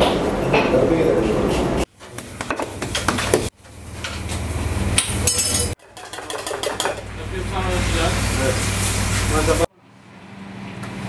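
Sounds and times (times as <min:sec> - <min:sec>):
utensils clanking on pans: 0:05.0 - 0:07.1.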